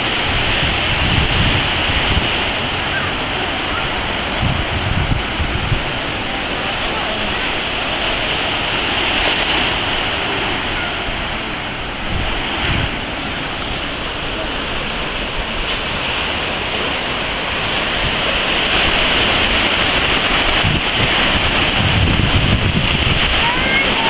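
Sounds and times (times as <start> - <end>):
ocean surf breaking on shore: 0.0 - 24.0
wind rumbling on microphone: 0.0 - 24.0.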